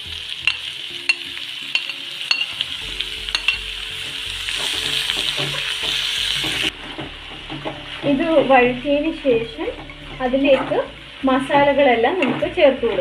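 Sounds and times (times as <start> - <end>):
vegetables sizzling in hot oil: 0.0 - 13.0
metal spatula clicking on pan: 0.5 - 2.5.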